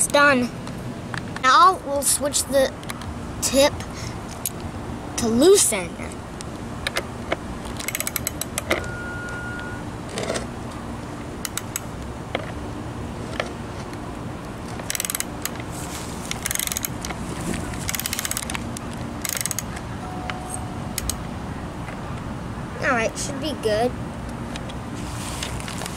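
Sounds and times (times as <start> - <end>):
ratchet wrench clicking: 7.8 - 8.7, 11.4 - 11.9, 14.9 - 15.6, 16.3 - 17.0, 17.9 - 18.5, 19.2 - 19.7, 21.0 - 21.2.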